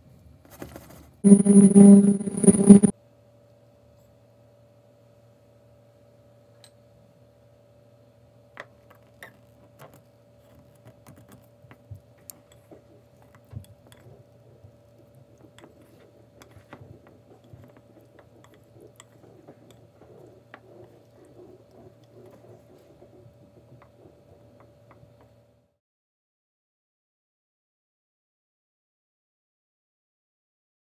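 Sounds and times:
faint steady hum: 1.3s - 2.9s.

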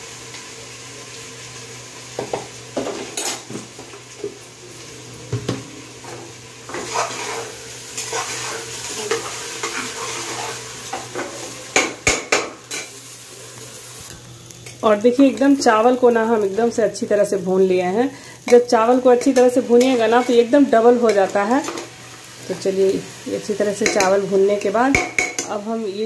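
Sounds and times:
rice crackling: 0.0s - 26.0s
rice sizzling in oil: 0.0s - 26.0s
spatula scraping and stirring rice: 6.7s - 11.6s.

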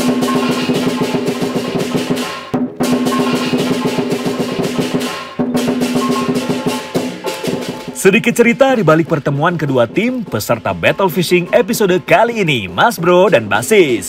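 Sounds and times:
hand cymbals clashing: 0.0s - 8.0s
rapid drum roll: 0.0s - 11.2s.

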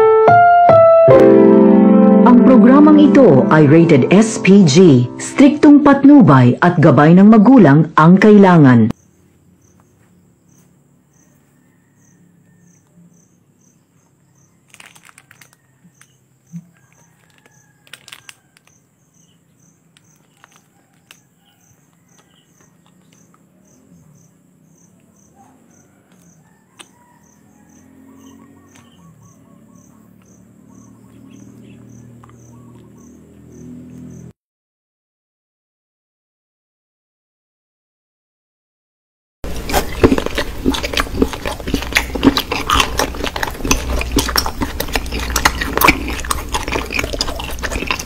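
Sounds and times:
crickets chirping: 8.9s - 34.3s
soft rustling of soap bars: 14.7s - 18.8s, 19.9s - 23.2s.

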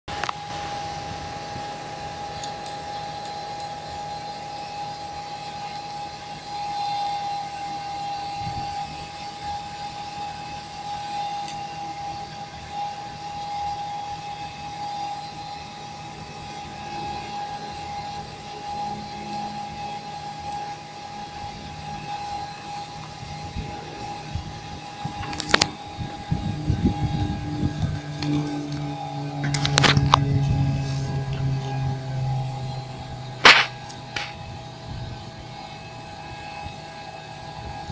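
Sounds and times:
aircraft cockpit hum and hiss: 0.1s - 37.9s
high whine: 0.1s - 37.9s
sharp click: 33.4s - 34.4s.

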